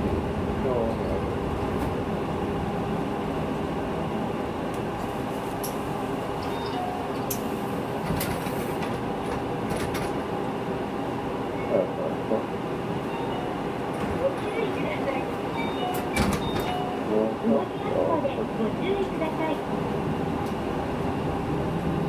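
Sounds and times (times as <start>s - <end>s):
bus engine and road rumble: 0.0s - 22.0s.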